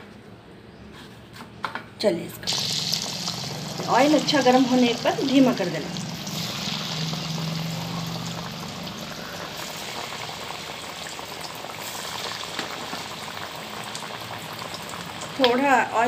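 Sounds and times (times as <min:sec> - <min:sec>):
chicken deep-frying in oil: 0:02.4 - 0:16.0.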